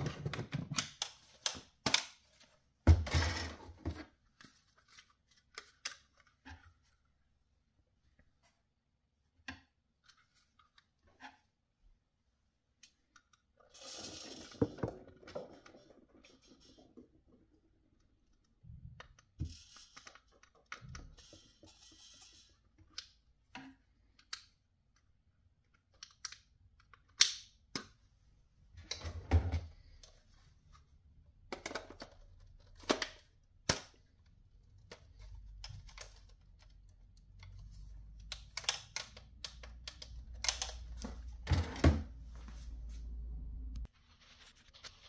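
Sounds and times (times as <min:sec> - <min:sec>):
plastic toy clicks and snaps: 0:26.0 - 0:27.9.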